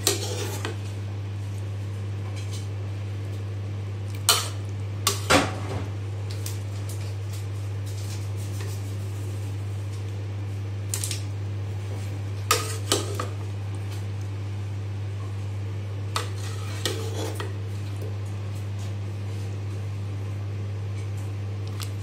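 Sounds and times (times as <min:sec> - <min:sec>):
low steady hum: 0:00.0 - 0:22.0.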